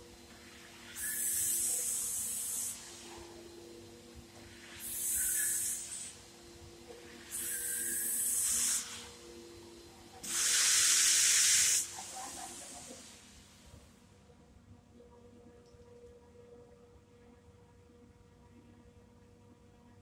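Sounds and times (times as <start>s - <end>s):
hissing bursts: 7.3s - 9.0s, 10.2s - 13.1s.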